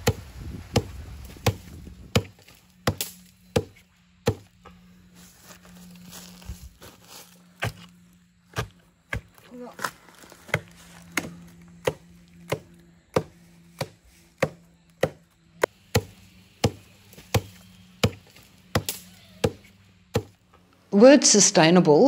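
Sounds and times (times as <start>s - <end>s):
knife chopping bamboo: 0.0s - 4.5s, 7.6s - 7.9s, 8.5s - 20.4s.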